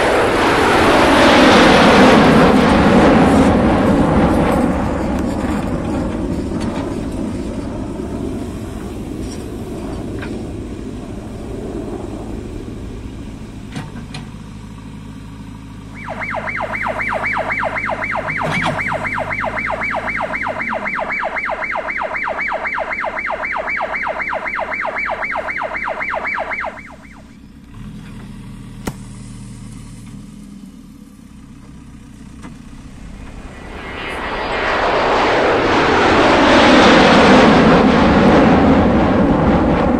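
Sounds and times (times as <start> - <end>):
diesel engine running: 0.0 - 33.9
rapid electronic beeping: 16.0 - 27.4.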